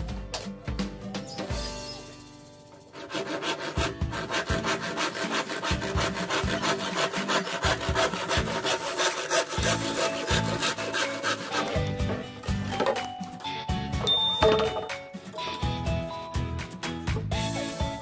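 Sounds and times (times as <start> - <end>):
hand saw cutting bamboo: 2.8 - 13.5.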